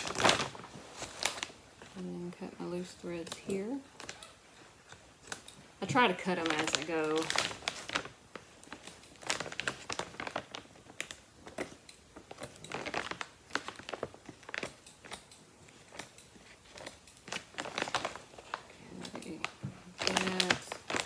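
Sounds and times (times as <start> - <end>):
plastic sack crinkling: 0.0 - 21.0.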